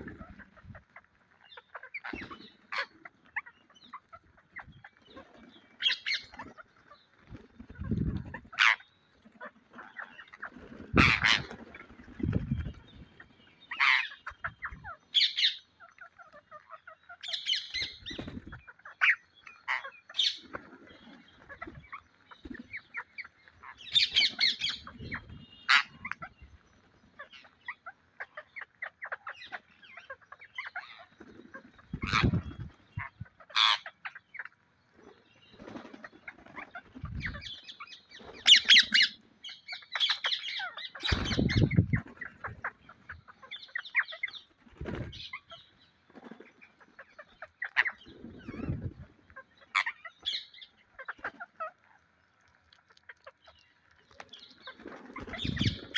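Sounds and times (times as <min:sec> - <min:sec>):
parakeets screeching and chattering: 0:00.0 - 0:55.9
wing flapping: 0:04.0 - 0:13.4, 0:17.6 - 0:18.6, 0:31.0 - 0:33.3, 0:35.0 - 0:37.4, 0:41.0 - 0:43.1, 0:44.4 - 0:47.1, 0:54.1 - 0:55.9.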